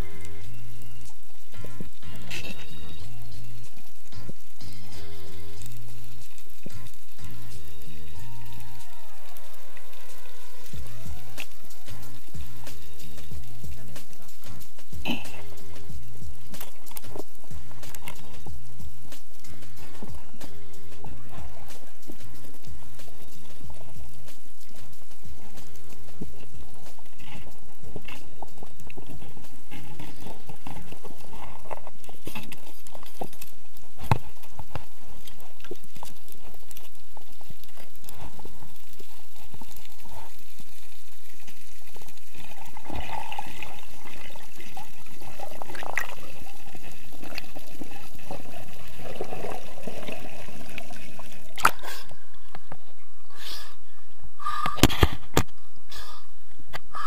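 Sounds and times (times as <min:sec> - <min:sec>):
water sloshing and gurgling underwater: 0:00.0 - 0:57.0
sharp water splashes: 0:10.0 - 0:52.1.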